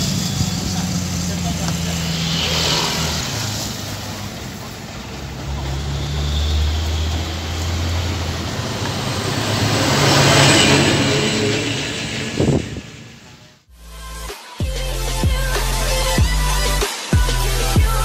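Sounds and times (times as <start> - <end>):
diesel engine idling: 0.0 - 13.5.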